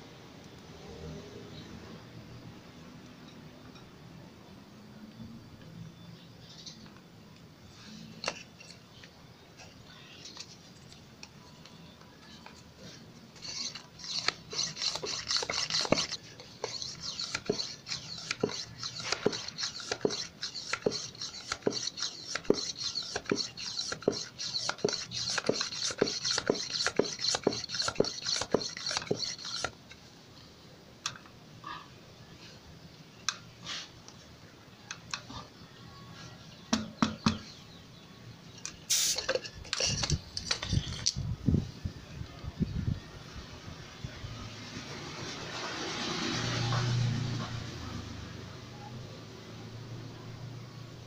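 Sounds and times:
hand air pump pumping: 12.9s - 29.8s, 38.9s - 41.1s.

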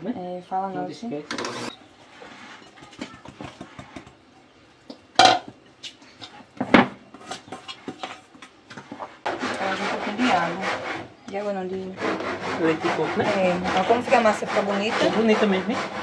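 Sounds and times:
spoon stirring batter in bowl: 1.4s - 10.2s.

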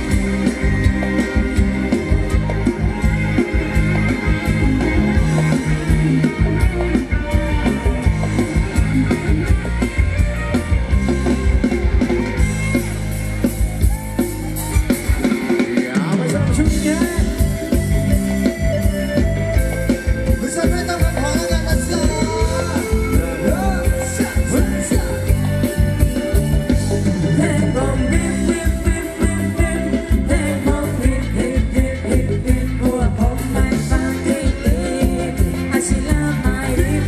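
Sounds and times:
steady drum beat: 0.0s - 37.0s
upbeat dance music over loudspeakers: 20.4s - 37.0s.

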